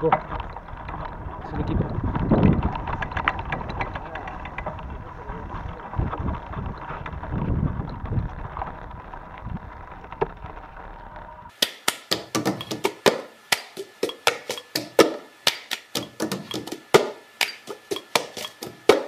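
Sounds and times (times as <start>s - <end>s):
rapid ringing clicks and knocks: 12.1s - 13.2s, 13.8s - 15.1s, 15.9s - 19.0s
thin steady tone: 12.5s - 19.0s.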